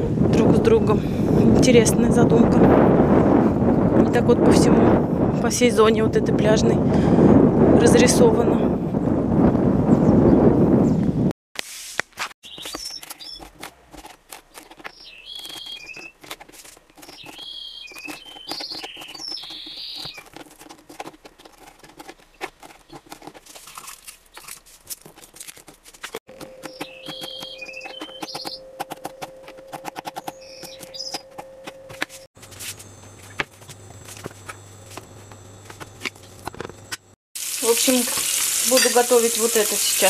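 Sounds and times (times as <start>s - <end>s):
bird chirps: 12.4s - 13.5s, 14.9s - 16.2s, 17.0s - 20.2s, 26.3s - 29.4s, 30.0s - 31.6s
knife cutting on plastic board: 12.5s - 29.1s.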